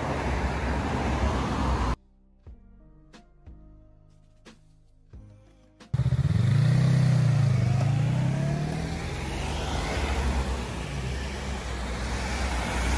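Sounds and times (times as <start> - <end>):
road traffic noise: 0.0 - 2.0, 6.0 - 12.9
motorcycle engine passing: 6.0 - 12.9.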